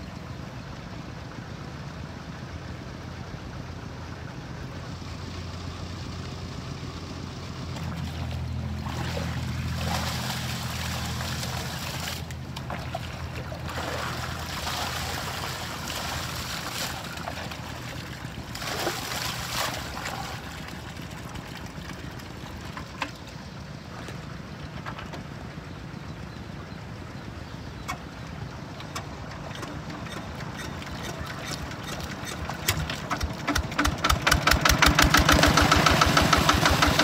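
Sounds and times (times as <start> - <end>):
low steady hum: 0.0 - 33.2
water splashing: 7.7 - 23.4.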